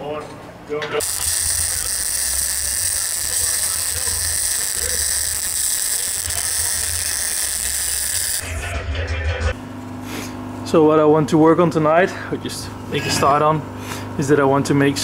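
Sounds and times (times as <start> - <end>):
welder crackling sizzle: 1.0 - 8.5.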